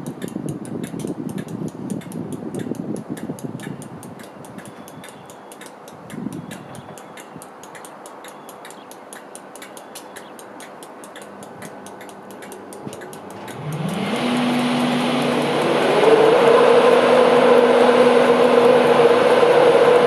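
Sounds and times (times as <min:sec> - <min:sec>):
fast even ticking: 0:00.0 - 0:18.7
fan rushing: 0:10.6 - 0:20.0
electric locomotive hum: 0:11.1 - 0:20.0.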